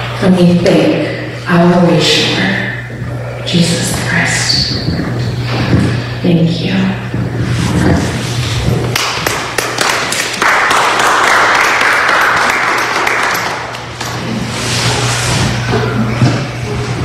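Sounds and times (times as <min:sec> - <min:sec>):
congregation applauding: 0:08.9 - 0:14.0.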